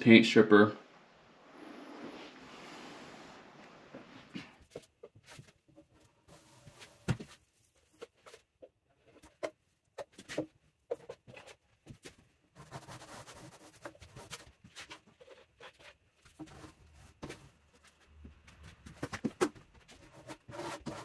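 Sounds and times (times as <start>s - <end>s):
scratchy scraping on wood: 19.9s - 21.0s.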